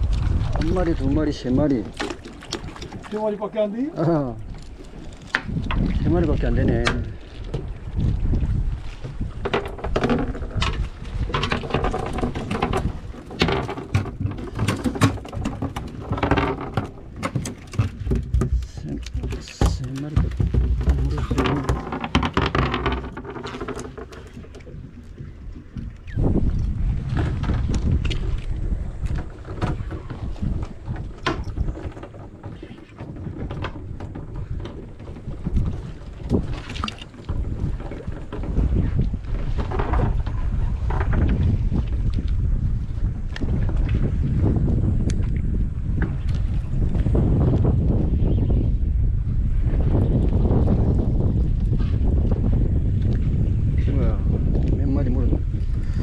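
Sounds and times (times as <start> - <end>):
wind buffeting microphone: 0.0 - 56.0
fish flapping on boat deck: 9.1 - 25.8.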